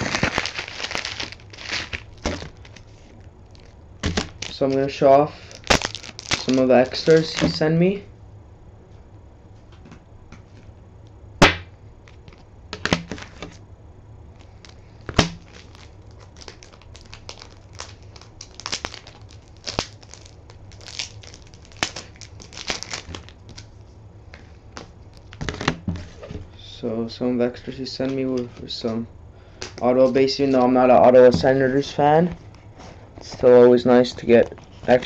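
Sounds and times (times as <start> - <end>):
package wrapping crinkling: 0.0 - 7.7, 14.4 - 26.4.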